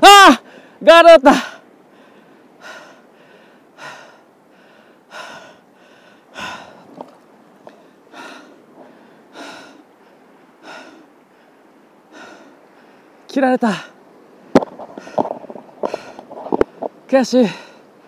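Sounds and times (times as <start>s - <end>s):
man breathing hard: 1.4s - 7.0s, 7.7s - 13.2s.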